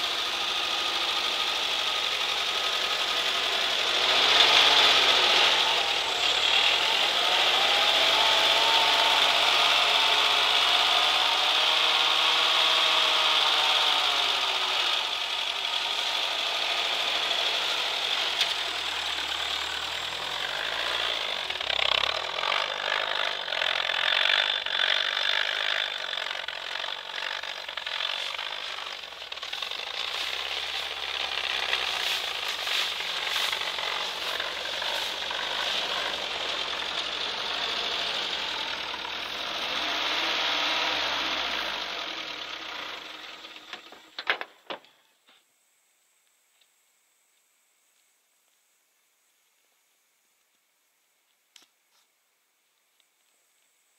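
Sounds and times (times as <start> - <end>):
engine revving under load: 0.0 - 44.2
vehicle rattling: 0.0 - 44.6.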